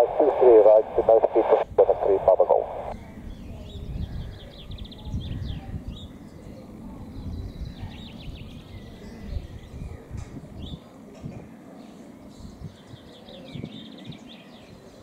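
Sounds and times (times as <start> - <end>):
steady low rumble: 0.0 - 3.0.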